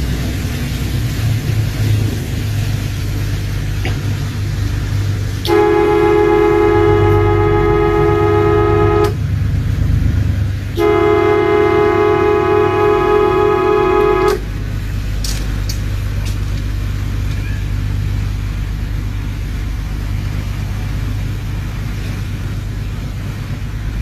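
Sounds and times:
boat engine rumbling: 0.0 - 24.0
horn steady note: 5.4 - 9.2, 10.7 - 14.6.

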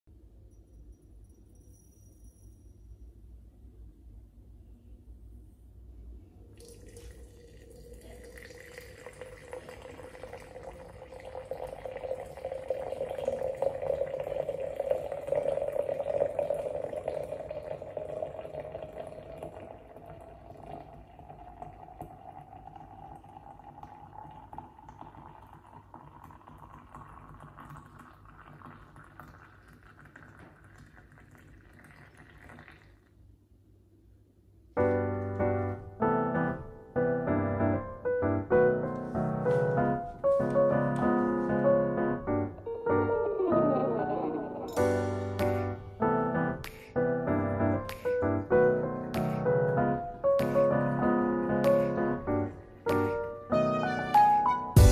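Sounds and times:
water pouring into glass pitcher: 6.5 - 33.3
piano music: 34.8 - 54.9.

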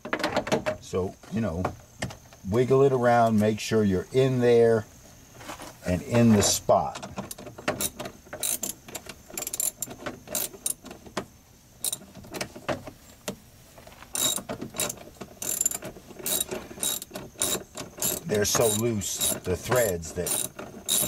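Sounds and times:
ratchet wrench clicking: 7.7 - 10.9, 11.8 - 12.1, 14.1 - 21.0.

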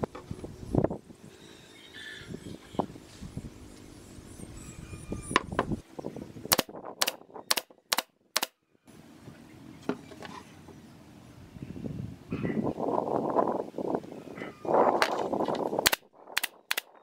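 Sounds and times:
nail gun firing into wood: 6.5 - 8.6, 15.8 - 16.9.

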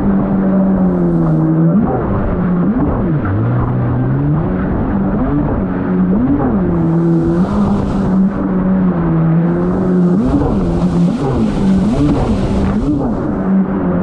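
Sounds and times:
jet ski engine revving: 0.0 - 14.0
wind and water spray rushing: 5.0 - 14.0.

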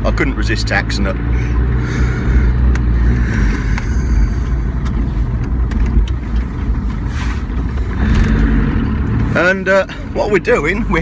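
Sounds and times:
car engine and road drone: 0.0 - 11.0.

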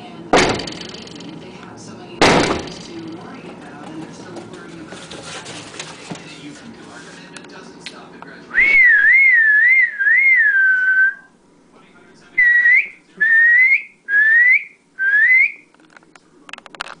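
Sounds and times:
person whistling: 8.6 - 11.3, 12.4 - 15.6.

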